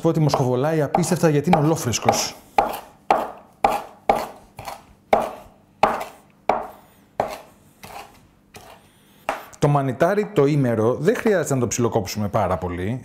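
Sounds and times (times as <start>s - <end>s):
knife chopping on cutting board: 0.3s - 9.6s.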